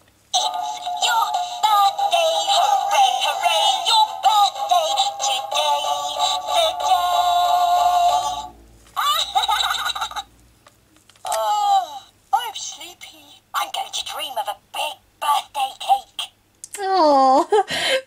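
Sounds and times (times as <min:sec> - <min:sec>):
toy playing synthesised song: 0:00.4 - 0:09.6.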